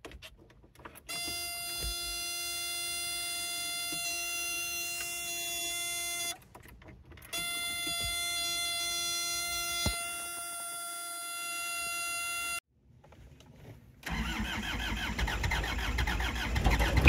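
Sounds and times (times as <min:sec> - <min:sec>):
steady buzzer tone: 0:07.4 - 0:12.6.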